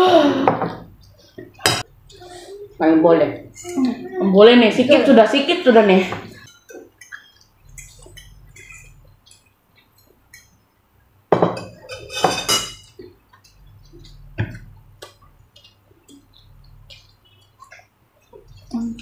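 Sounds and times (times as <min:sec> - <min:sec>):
cutlery clinking on plates: 0:11.3 - 0:13.5.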